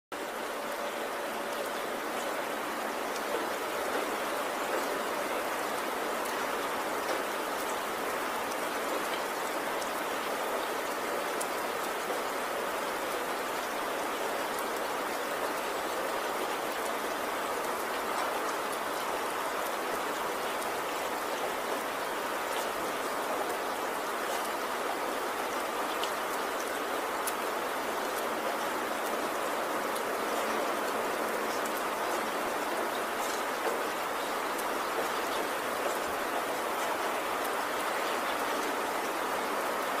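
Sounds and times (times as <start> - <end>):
faint raindrop ticks: 0.2 - 40.0
steady rain hiss: 0.2 - 40.0.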